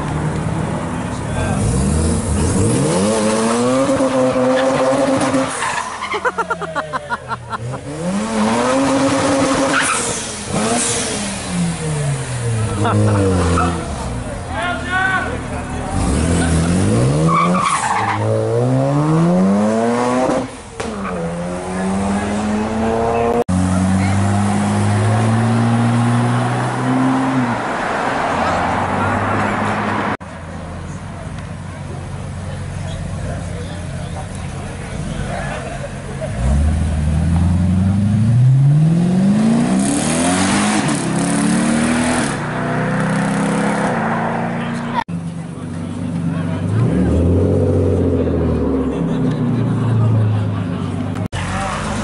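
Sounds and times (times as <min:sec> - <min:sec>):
car engine revving hard: 0:01.4 - 0:05.6, 0:07.6 - 0:14.2, 0:15.8 - 0:20.6, 0:21.2 - 0:30.2, 0:36.3 - 0:44.9, 0:46.6 - 0:49.4.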